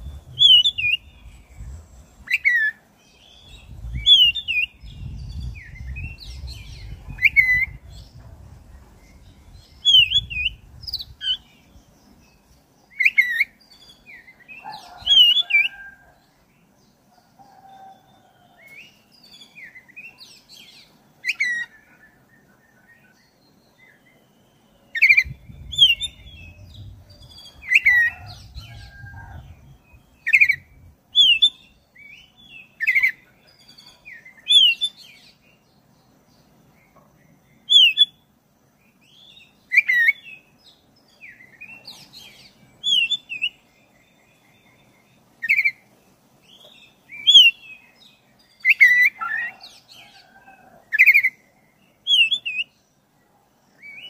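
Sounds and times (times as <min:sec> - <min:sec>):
bird singing whistled phrases: 0:00.2 - 0:01.2, 0:09.8 - 0:11.5, 0:37.7 - 0:38.2, 0:42.8 - 0:43.6, 0:47.2 - 0:47.7, 0:52.1 - 0:52.7.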